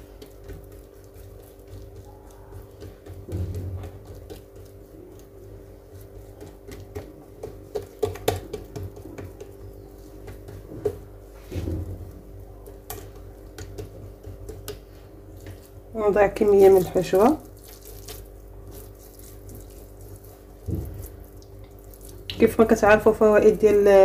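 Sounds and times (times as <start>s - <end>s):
hands patting dough: 0.0s - 24.0s
soft thump: 20.7s - 21.0s.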